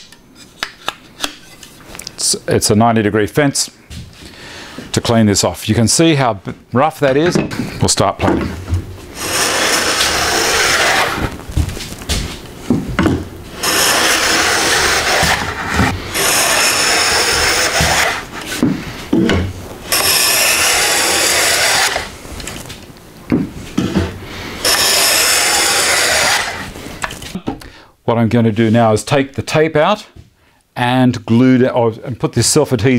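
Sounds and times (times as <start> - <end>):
plane shaving wood: 9.1 - 11.4, 13.4 - 18.6, 19.8 - 22.5, 24.0 - 26.8.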